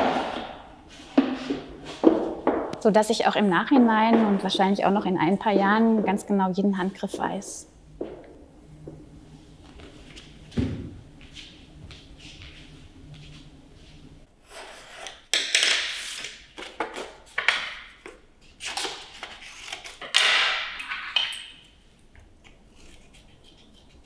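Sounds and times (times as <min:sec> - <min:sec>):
paper rustling: 0:18.6 - 0:20.2.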